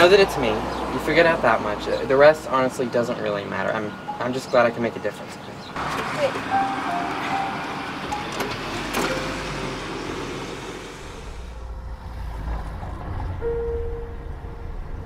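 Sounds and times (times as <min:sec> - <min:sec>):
road traffic rumble: 0:00.0 - 0:15.0
short steady tone: 0:13.4 - 0:14.6.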